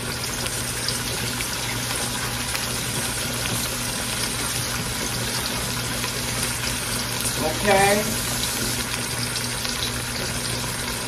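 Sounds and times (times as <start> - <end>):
meat sizzling in hot oil: 0.0 - 11.0
tap running: 0.4 - 11.0.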